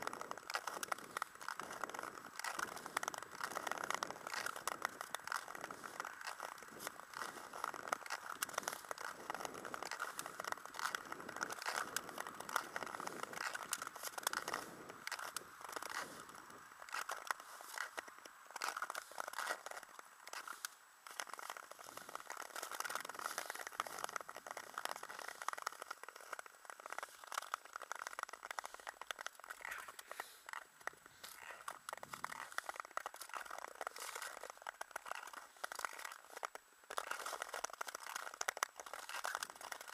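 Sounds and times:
ice skate blades scraping ice: 0:00.0 - 0:39.9.

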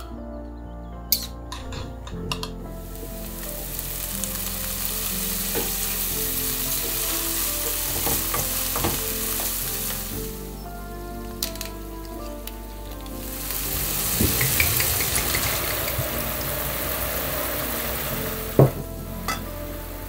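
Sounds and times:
food sizzling in hot oil: 0:02.8 - 0:10.6, 0:13.2 - 0:20.0
oil popping: 0:03.0 - 0:10.4, 0:11.3 - 0:19.6.

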